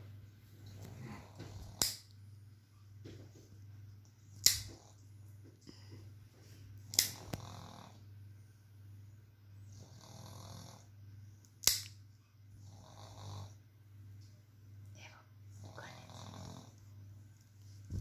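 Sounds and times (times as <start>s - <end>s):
nail clippers snapping shut: 1.7s - 2.1s, 4.4s - 4.8s, 6.9s - 7.4s, 11.6s - 12.0s.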